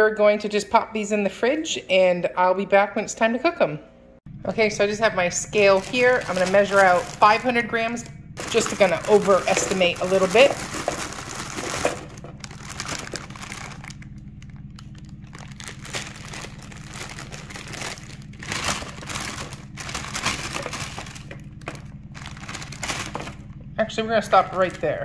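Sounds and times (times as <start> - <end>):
plastic bag crinkling: 5.6 - 23.6, 24.3 - 25.0.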